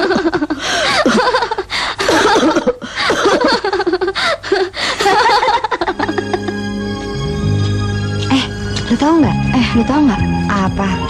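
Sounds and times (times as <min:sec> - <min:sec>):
women laughing heartily: 0:00.0 - 0:06.8.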